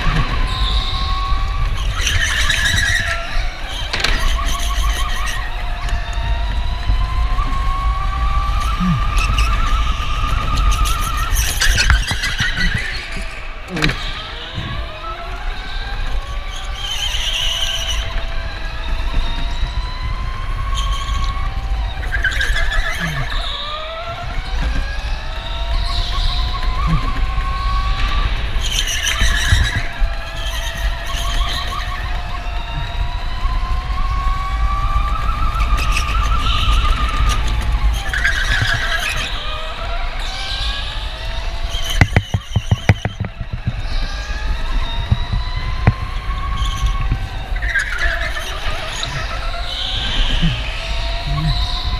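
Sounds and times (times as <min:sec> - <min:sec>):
electric motor whine: 0:00.0 - 0:51.9
wind rumble on microphone: 0:00.0 - 0:51.9
tyres squealing: 0:22.4 - 0:23.5
rattle of knocks: 0:41.8 - 0:47.8.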